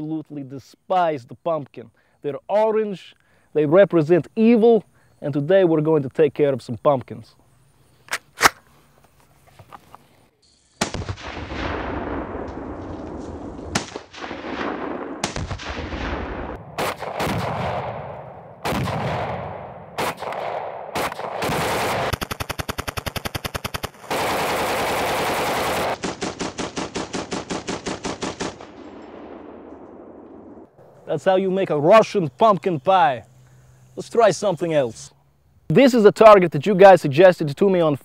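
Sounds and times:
gunshot echo ringing: 13.7 - 22.1
rifle firing full auto: 20.0 - 29.5.

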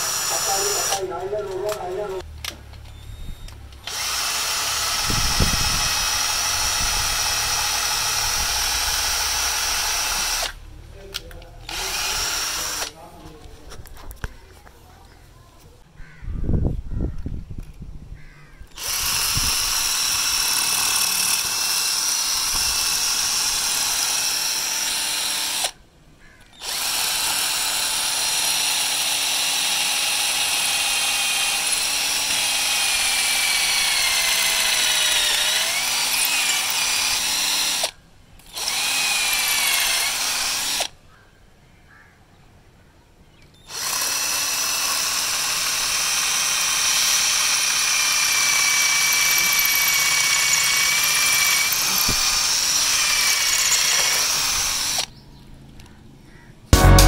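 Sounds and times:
cordless drill drilling into brick: 0.0 - 1.1, 3.8 - 10.6, 11.6 - 13.0, 18.7 - 25.8, 26.6 - 40.9, 43.7 - 55.1.

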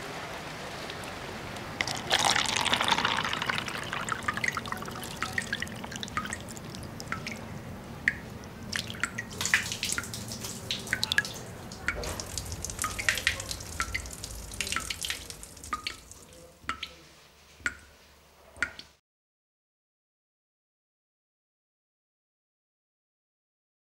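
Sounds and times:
faint running water: 0.0 - 19.0
water dripping: 0.8 - 18.0, 18.6 - 19.0.

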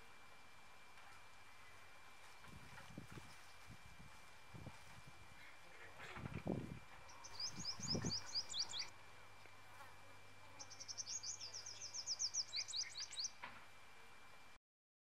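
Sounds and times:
faint steady high whine: 0.0 - 14.6
songbird singing: 6.9 - 8.9, 10.5 - 13.4.

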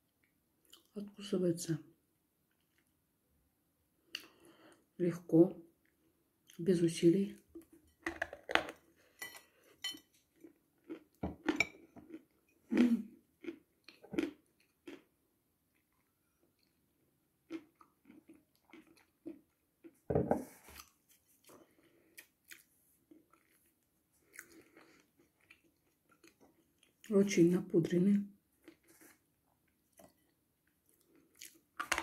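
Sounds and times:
soft chewing: 0.2 - 1.0, 2.5 - 3.0, 7.4 - 15.1, 15.7 - 27.1, 28.5 - 31.9.

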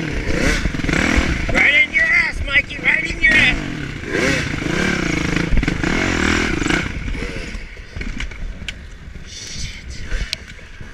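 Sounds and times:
dirt bike engine revving: 0.0 - 8.5.

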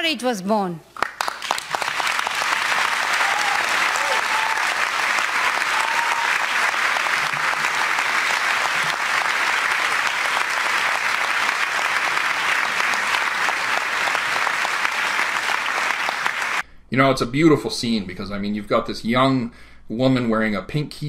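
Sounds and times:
audience applauding: 1.0 - 16.6.

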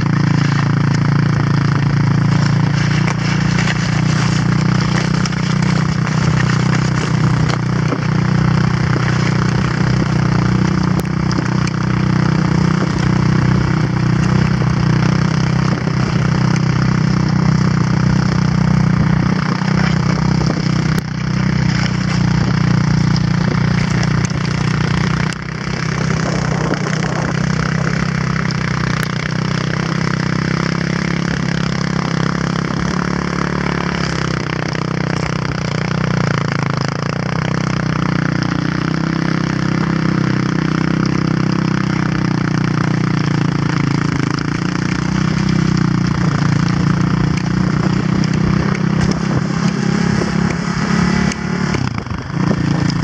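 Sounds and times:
quad engine running: 0.0 - 53.0
sled runners sliding over snow: 0.0 - 53.0.

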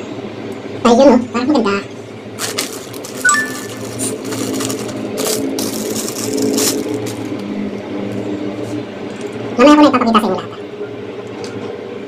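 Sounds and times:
plastic wrapping crinkling: 2.4 - 7.6.

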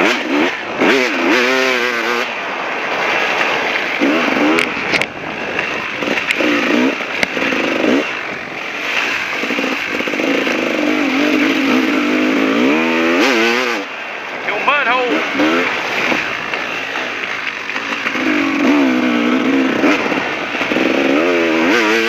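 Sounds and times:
dirt bike engine revving: 0.0 - 22.0.

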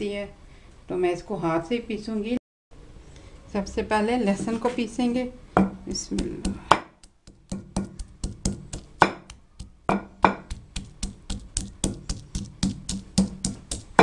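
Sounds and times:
pestle pounding in stone mortar: 5.6 - 14.0.

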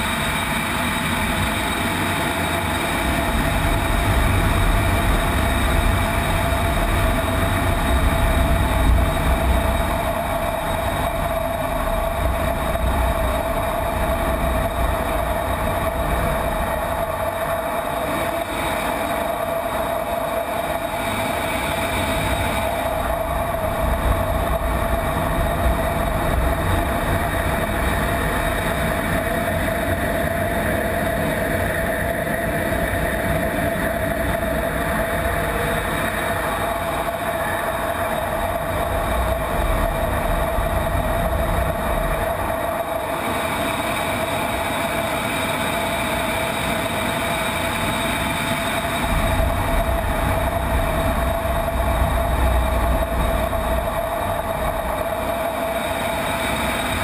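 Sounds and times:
constant whine: 0.0 - 57.0
jet engine and rushing air: 0.0 - 57.0
low rumble: 48.8 - 55.8.

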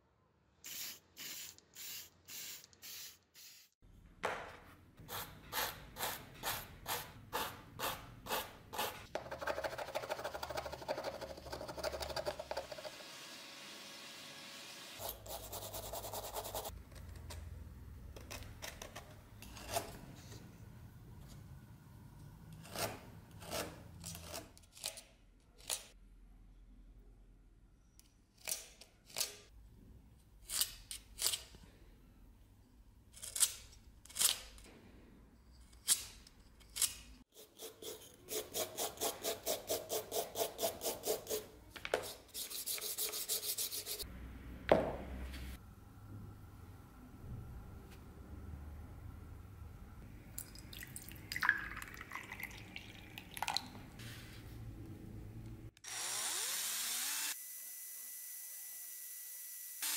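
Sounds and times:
sandpaper rubbing on wood: 42.0 - 44.0.

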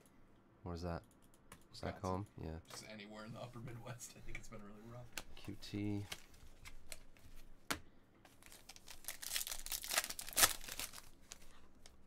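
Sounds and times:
foil wrapper crinkling: 8.4 - 12.0.

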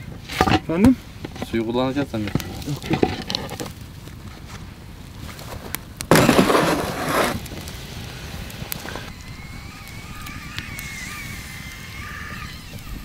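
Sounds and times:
wood fire crackling clicks: 0.3 - 12.9
water hissing on hot pot: 6.2 - 13.0.

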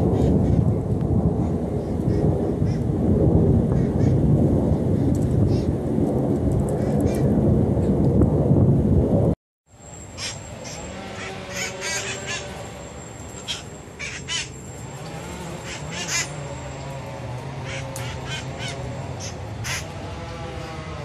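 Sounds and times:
parakeets calling: 10.1 - 16.6, 17.6 - 20.0.

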